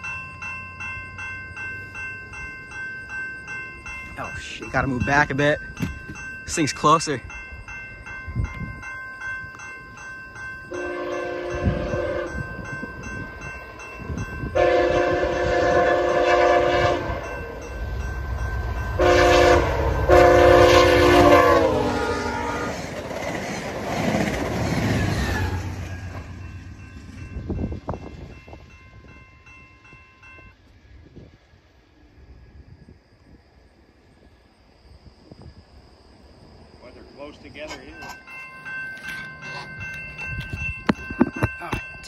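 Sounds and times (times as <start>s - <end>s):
crossing bells ringing: 0.0s - 30.7s, 34.2s - 42.0s
train rushing by: 0.0s - 33.4s, 34.8s - 42.0s
train horn blasts: 10.7s - 12.4s, 14.5s - 17.4s, 18.9s - 22.8s.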